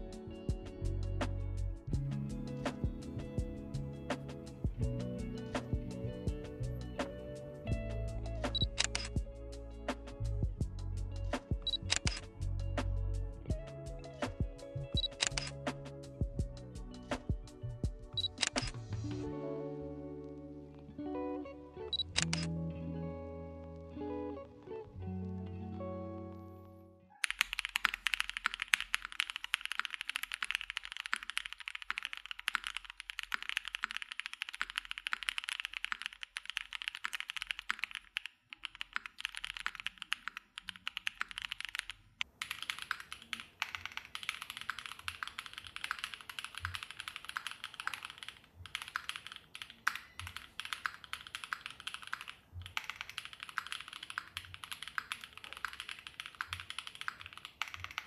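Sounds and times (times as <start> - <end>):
mechanical keyboard typing: 8.5 - 9.1, 11.6 - 12.2, 15.0 - 15.6, 18.2 - 18.8, 27.2 - 58.0.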